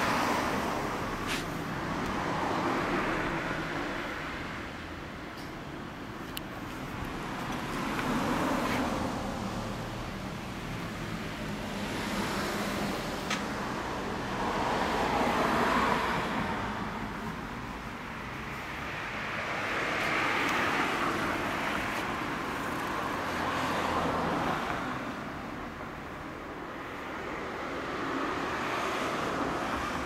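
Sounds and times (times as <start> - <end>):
road traffic passing: 0.0 - 30.0.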